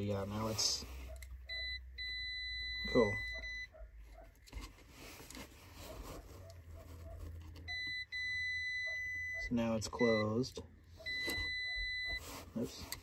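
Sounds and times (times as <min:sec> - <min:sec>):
multimeter high beep: 0:01.5 - 0:03.7, 0:07.7 - 0:10.4, 0:11.0 - 0:12.2.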